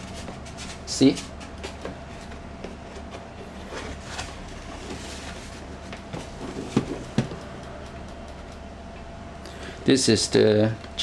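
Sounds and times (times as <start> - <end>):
cardboard packaging rustling: 3.0 - 7.5.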